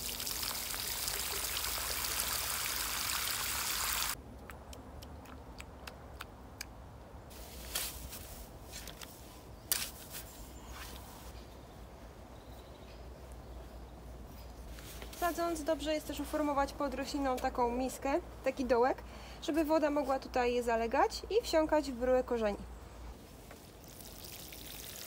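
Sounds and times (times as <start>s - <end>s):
water pouring onto soil: 0.0s - 4.2s, 23.7s - 25.0s.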